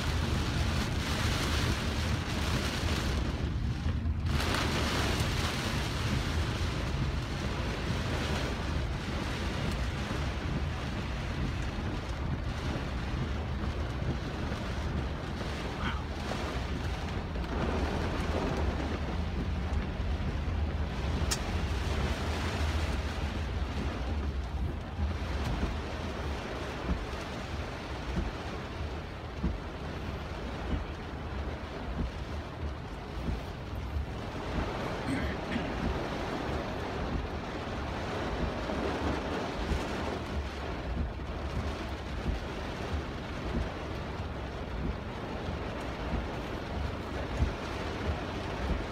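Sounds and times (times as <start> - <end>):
heavy rain on car roof: 0.0 - 48.9
low car rumble: 0.0 - 48.9.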